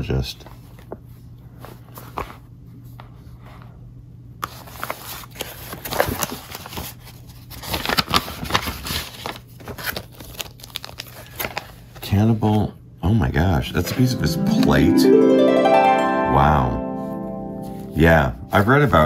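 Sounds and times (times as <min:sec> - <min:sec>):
paper and plastic rustling: 0:04.4 - 0:12.2.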